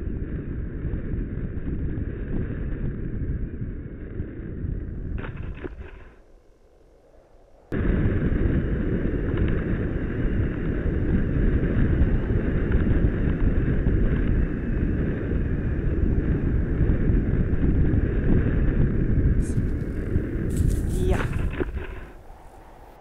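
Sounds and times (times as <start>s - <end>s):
wind buffeting microphone: 7.6s - 23.0s.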